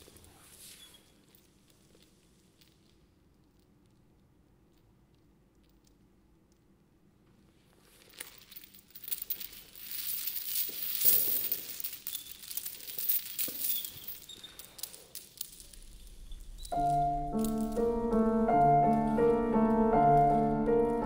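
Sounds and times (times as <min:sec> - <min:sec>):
steel chains rattling and clinking: 0:08.0 - 0:19.1.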